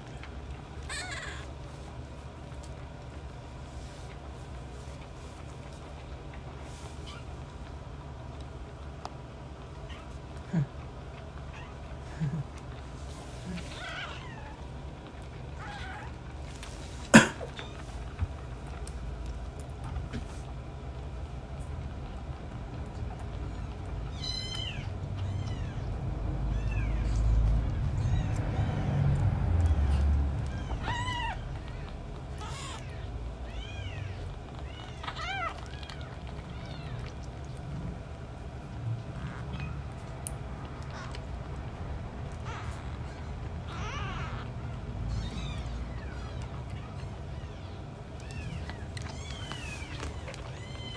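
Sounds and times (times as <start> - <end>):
kittens mewing: 0.1 - 1.7, 9.7 - 18.9, 23.3 - 38.4, 39.0 - 50.9.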